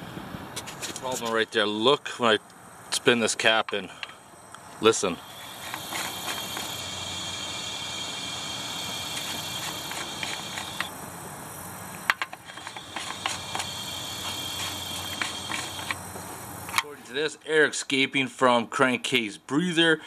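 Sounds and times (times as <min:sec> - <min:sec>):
compressed air hissing: 0:03.9 - 0:16.9
thin whistle: 0:05.1 - 0:10.9.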